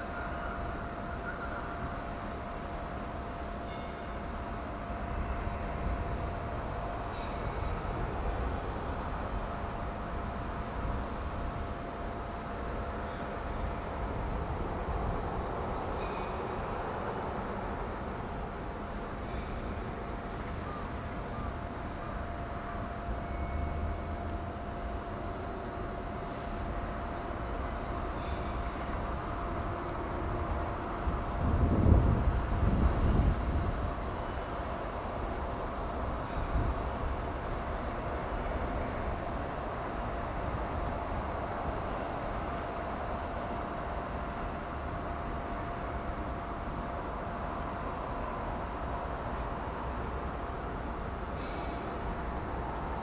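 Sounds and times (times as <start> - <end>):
constant thin hum: 0.0 - 53.0
outdoor background rumble: 0.0 - 53.0.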